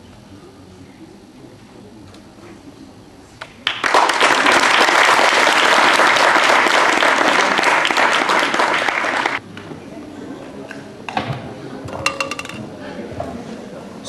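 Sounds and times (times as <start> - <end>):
crowd clapping: 3.4 - 9.7
lone claps: 3.4 - 9.7.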